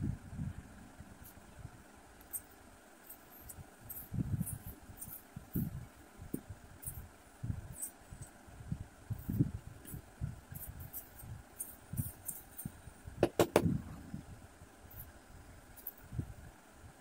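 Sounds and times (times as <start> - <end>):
light bumps on table: 13.2 - 13.7.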